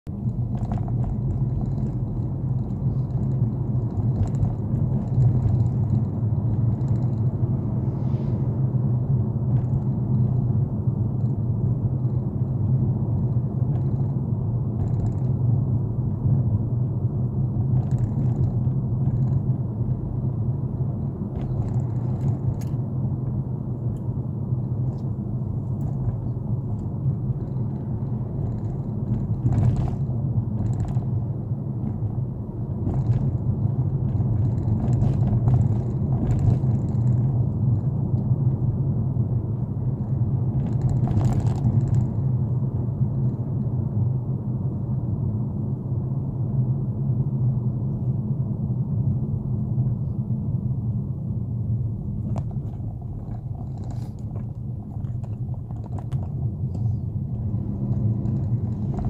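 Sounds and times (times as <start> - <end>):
car engine and tyres rumbling: 0.0 - 59.0
faint clicks and rattles: 0.1 - 7.4, 9.5 - 15.6, 17.7 - 20.0, 21.0 - 22.8, 24.0 - 31.2, 32.8 - 38.3, 40.0 - 43.6, 52.2 - 59.0.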